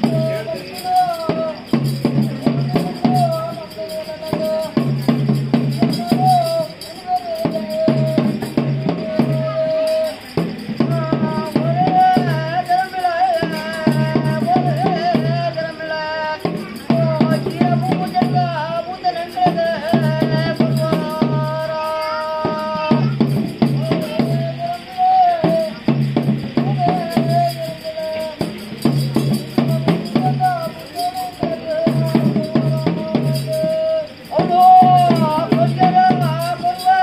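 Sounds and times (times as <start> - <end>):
pitched drum strokes: 0.0 - 37.0
rattling percussion: 0.0 - 37.0
wind instrument melody: 0.0 - 37.0.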